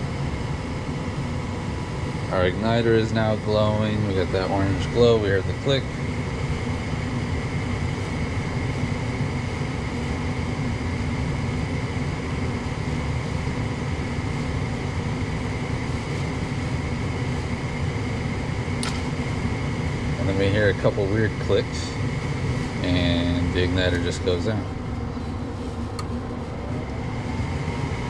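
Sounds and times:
furnace motor whining: 0.0s - 28.0s
sharp ignition click: 18.8s - 19.1s.

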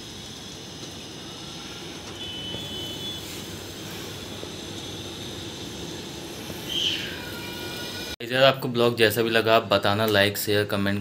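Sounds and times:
distant traffic hum: 0.0s - 8.2s.

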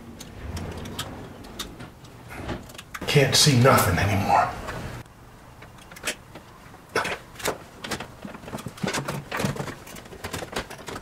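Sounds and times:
wire clicking and scraping in metal panel: 0.0s - 3.0s.

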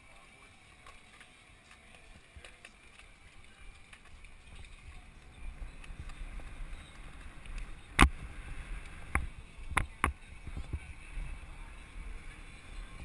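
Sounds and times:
bicycle tyres rolling: 0.0s - 13.0s
wind noise on microphone: 4.2s - 13.0s.

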